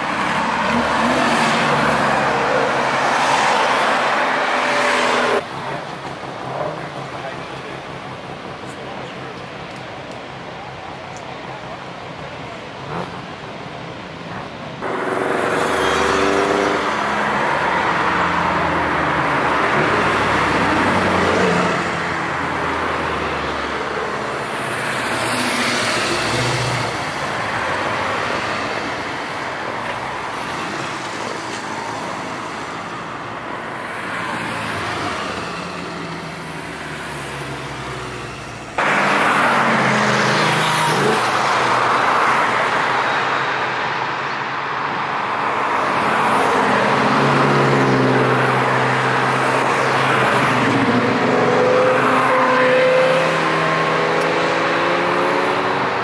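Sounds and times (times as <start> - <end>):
engines revving: 0.0 - 5.5, 14.8 - 28.9, 38.8 - 42.6, 45.6 - 56.0
car engines passing by: 0.0 - 56.0
tyre and road noise: 0.0 - 56.0.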